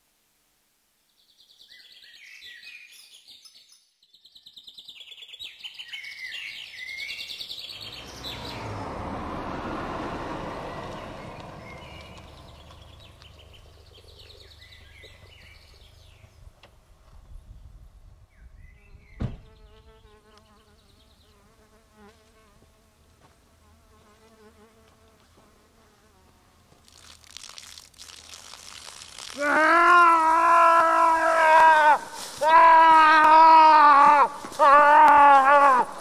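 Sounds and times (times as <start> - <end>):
car driving away: 7.6 - 16.2
sharp knock: 19.2 - 19.5
fly buzzing: 19.3 - 33.5
rustling: 31.6 - 32.8.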